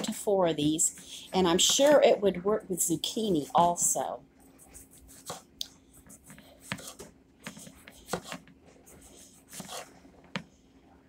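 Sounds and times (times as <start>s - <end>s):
knife slicing squash: 5.0s - 5.5s, 8.0s - 8.4s.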